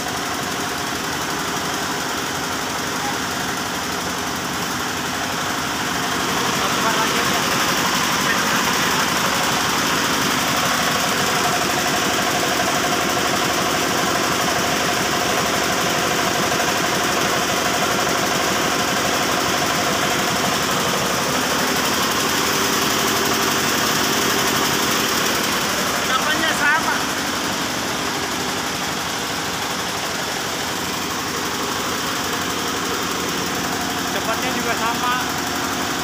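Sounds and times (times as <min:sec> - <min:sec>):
diesel engine chugging: 0:00.0 - 0:36.0.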